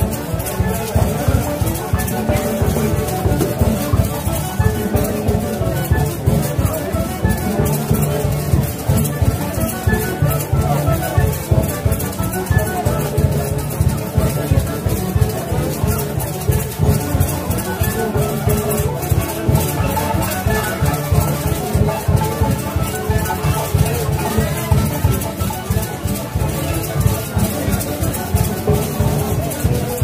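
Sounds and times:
festive band music: 0.0s - 30.0s
rattling percussion: 0.0s - 30.0s
steady drumbeat: 0.9s - 9.3s.

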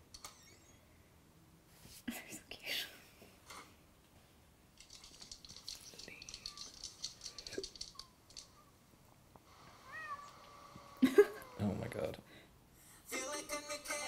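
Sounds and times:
faint shaker-like rattling: 4.8s - 8.6s.

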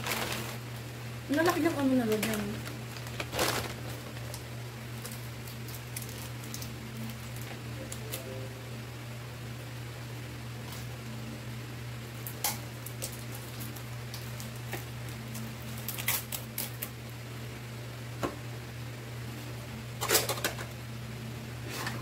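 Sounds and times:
paper napkin crinkling: 0.0s - 0.7s, 1.4s - 7.5s
low hum: 0.0s - 12.3s.

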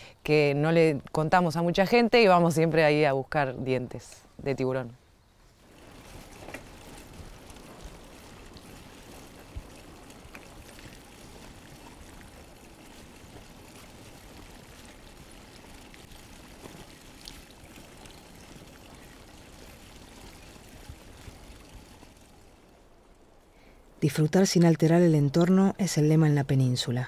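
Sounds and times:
shallow water washing: 5.4s - 25.0s.

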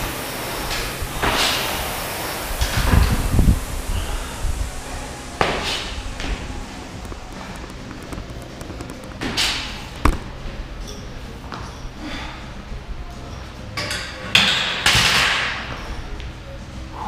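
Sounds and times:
long noisy rushes: 0.0s - 10.6s
thuds on rubber gym floor: 10.0s - 10.4s.

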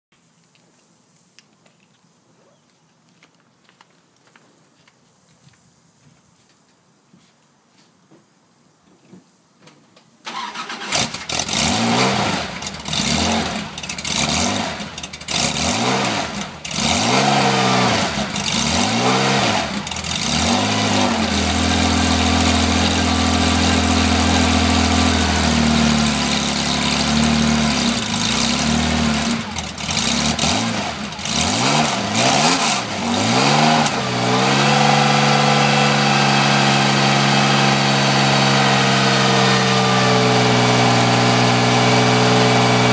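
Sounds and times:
car engine revving and idling: 10.6s - 42.9s.

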